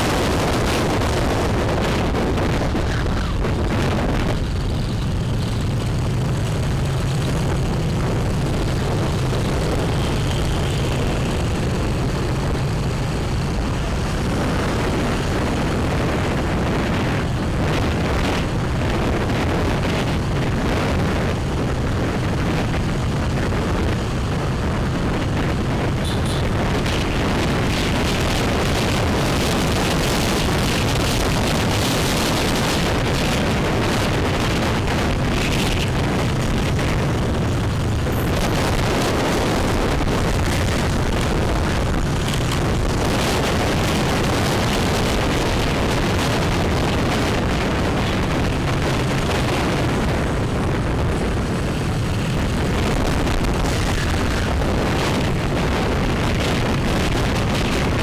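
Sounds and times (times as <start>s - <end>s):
road and traffic noise: 0.0s - 58.0s
wind rushing over microphone: 0.0s - 58.0s.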